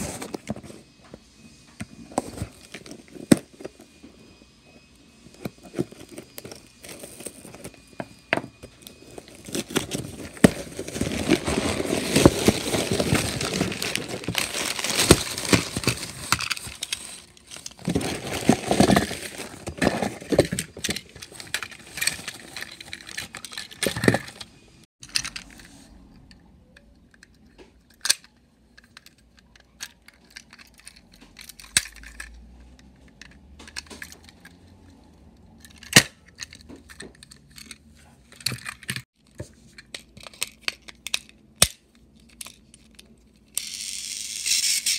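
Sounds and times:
packaging rustling and tearing: 5.6 - 7.9, 8.8 - 24.4.

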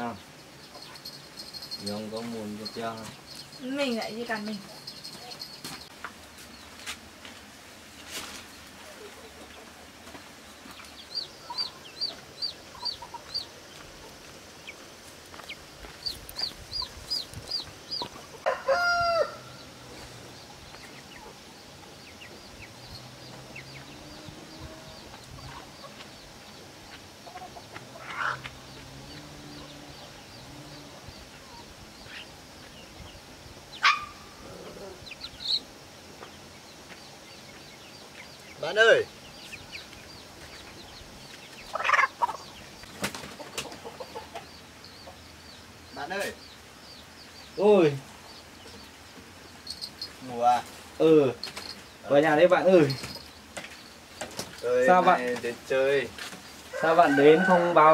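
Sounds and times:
chickens clucking: 0.0 - 6.3, 8.2 - 19.2, 19.9 - 57.9
chicks peeping: 8.3 - 18.8, 19.6 - 57.9
rooster crowing: 18.4 - 19.8, 56.7 - 57.9.

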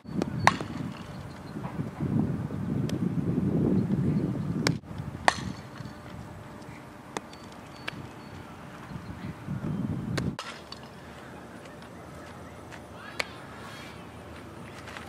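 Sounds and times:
wind rumble on microphone: 0.0 - 6.8, 7.8 - 10.4
sharp crack: 4.6 - 5.7, 10.2 - 11.0.

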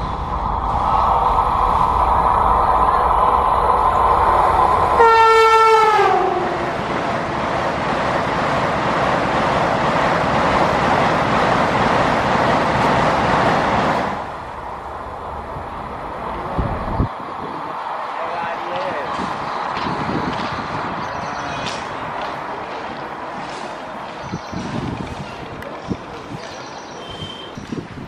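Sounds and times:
train passing at high speed: 0.0 - 28.0
train horn: 5.0 - 6.7.

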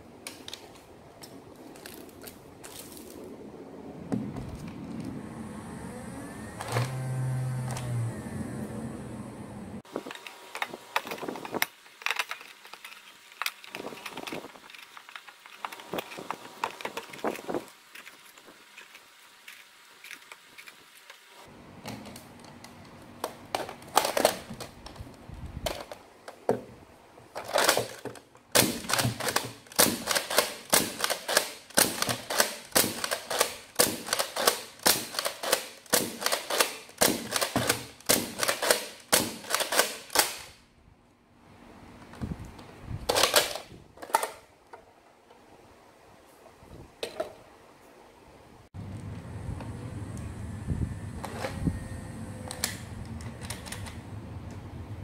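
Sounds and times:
toy blaster firing clack: 28.6 - 40.5.

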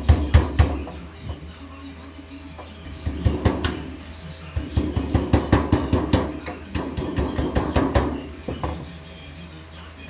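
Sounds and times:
hammer striking sheet metal: 3.0 - 3.9, 4.6 - 8.8.

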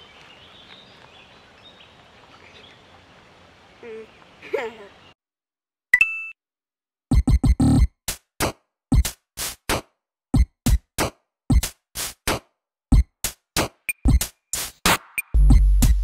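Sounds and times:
drum machine beat: 7.1 - 16.0.

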